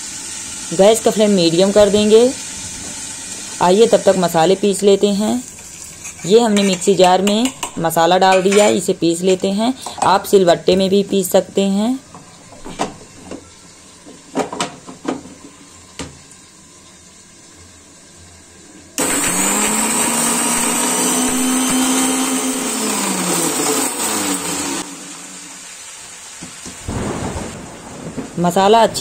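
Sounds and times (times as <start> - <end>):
mixer grinder grinding spices: 0.4 - 10.0, 19.0 - 25.3.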